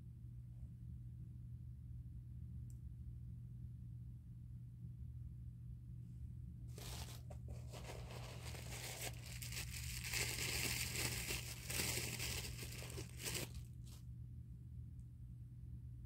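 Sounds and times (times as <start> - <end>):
paper wrapping crinkling: 6.8 - 13.7.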